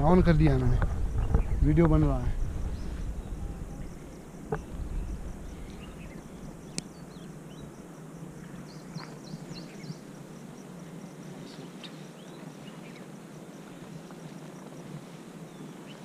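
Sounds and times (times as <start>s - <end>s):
low background rumble: 0.0s - 8.5s
small birds chirping: 0.1s - 10.2s, 10.9s - 14.1s, 15.4s - 16.0s.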